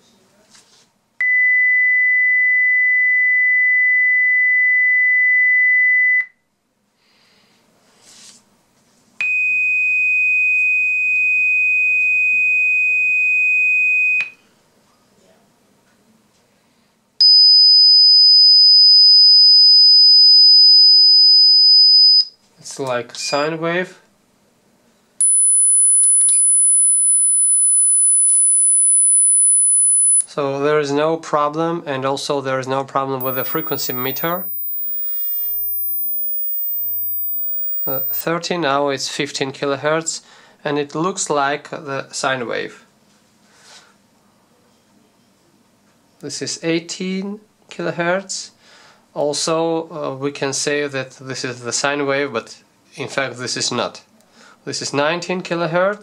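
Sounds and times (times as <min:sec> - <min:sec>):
high-pitched sine-wave test tone: 0:17.2 - 0:22.3, 0:25.2 - 0:30.3, 0:33.2 - 0:38.3.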